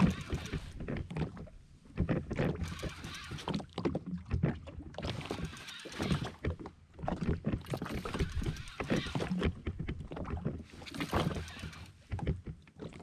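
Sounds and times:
knocks and rattles of gear: 0.0s - 1.4s, 2.0s - 3.6s, 5.0s - 6.6s, 7.5s - 9.9s, 10.7s - 12.7s
water slapping against hull: 0.0s - 13.0s.

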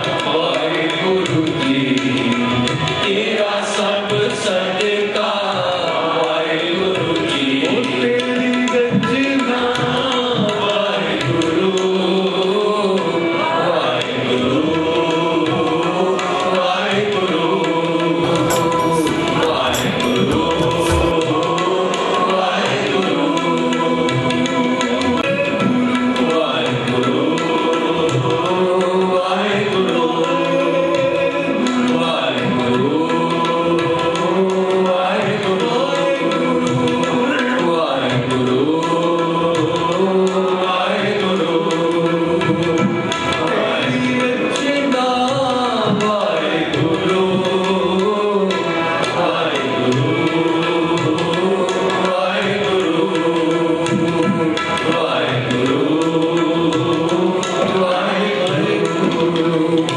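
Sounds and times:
tabla: 0.0s - 59.9s
voices singing a devotional hymn: 0.0s - 59.9s
steady held notes: 17.8s - 21.9s.

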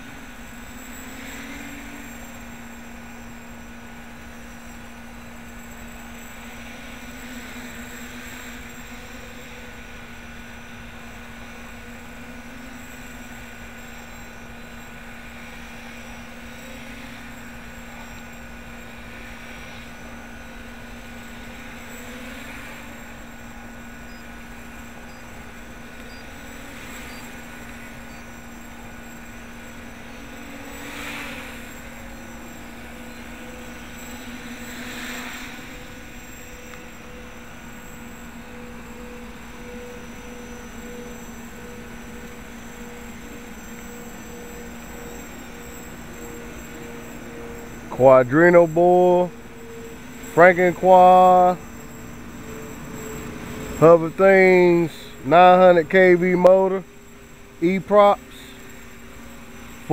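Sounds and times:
quadcopter propellers buzzing: 0.0s - 59.9s.

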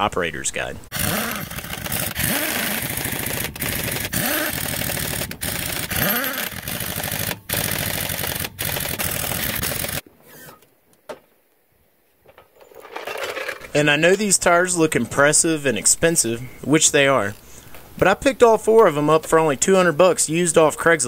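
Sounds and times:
impact wrench rattling: 0.9s - 10.0s, 12.4s - 13.8s.

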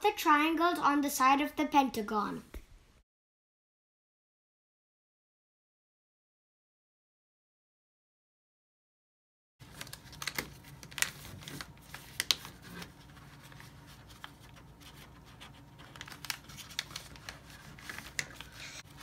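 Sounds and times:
paper crinkling: 9.6s - 19.0s.

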